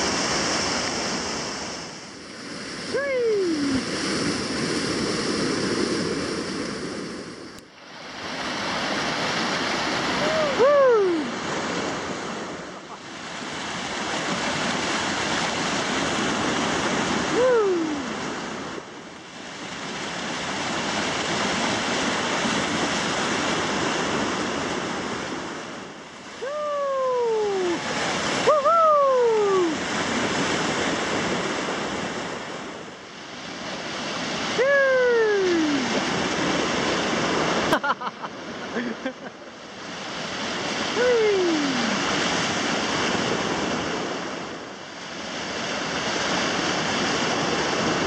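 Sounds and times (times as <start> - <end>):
paddlers yelling: 2.8 - 4.0, 10.0 - 11.7, 26.3 - 30.0, 34.3 - 36.5, 40.7 - 42.3
whitewater rapids rushing: 7.9 - 18.6, 26.0 - 32.0, 33.8 - 39.2, 40.0 - 44.1.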